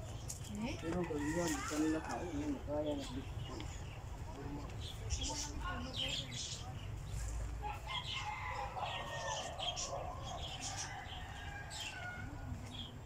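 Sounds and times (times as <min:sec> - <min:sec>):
small birds chirping: 0:00.0 - 0:13.0
rooster crowing: 0:07.6 - 0:12.6.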